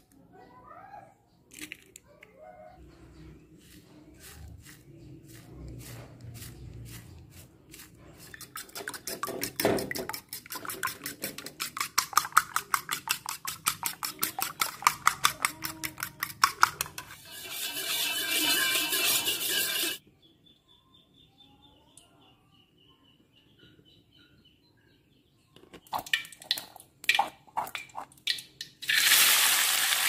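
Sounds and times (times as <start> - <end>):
spoon beating eggs in bowl: 3.1 - 20.0, 25.7 - 28.8.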